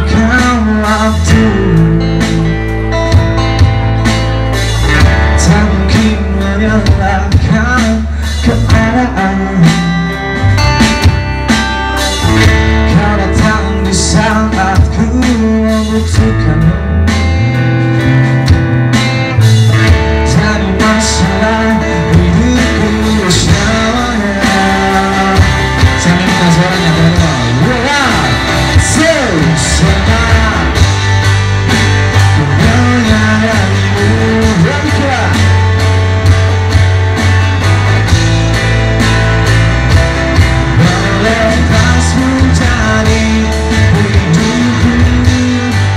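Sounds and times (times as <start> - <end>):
man singing: 0.0 - 2.8, 5.0 - 10.6, 12.2 - 17.6, 19.9 - 31.3, 32.2 - 35.6, 40.6 - 45.9
live pop-rock band: 0.0 - 45.9.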